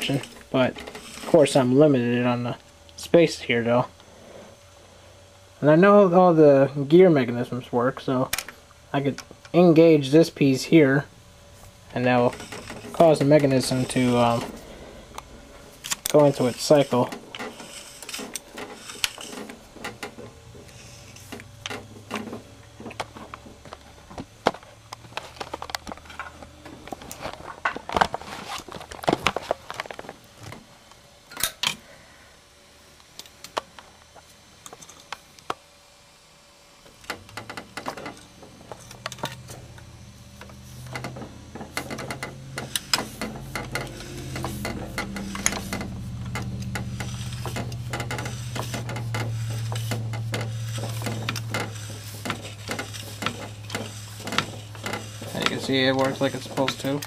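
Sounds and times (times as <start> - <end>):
low hum: 7.4 - 28.2, 37.0 - 57.0
jukebox mechanism clicks and clunks: 11.9 - 30.6, 37.0 - 57.0.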